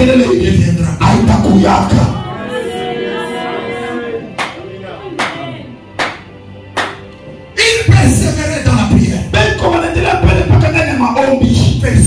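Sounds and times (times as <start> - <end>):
man preaching loudly: 7.6 - 12.0.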